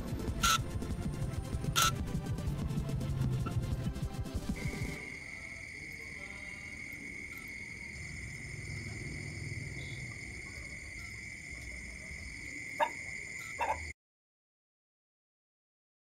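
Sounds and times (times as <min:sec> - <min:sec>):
crickets trilling: 0:04.6 - 0:14.0.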